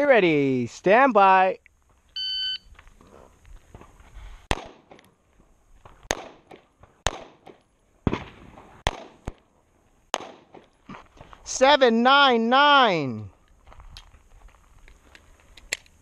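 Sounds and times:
shot timer beep: 2.2s - 2.7s
pistol shots: 4.5s - 5.1s, 6.0s - 9.4s, 10.1s - 10.8s.

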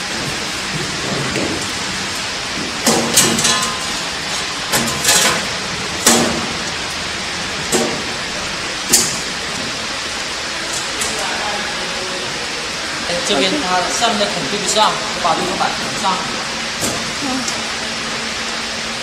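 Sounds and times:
metallic clanks and knocks: 2.6s - 6.6s.

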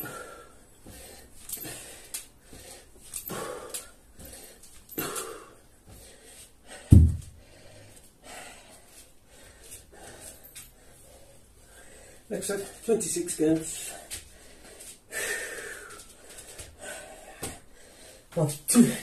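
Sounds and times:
man breathing hard: 0.0s - 12.3s, 13.8s - 18.4s
heavy low thud: 6.9s - 7.4s.

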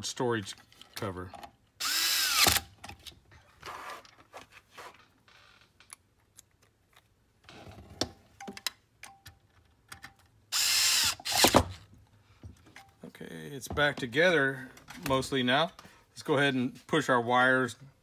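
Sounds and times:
cordless drill burst: 1.8s - 2.7s, 10.5s - 11.7s.

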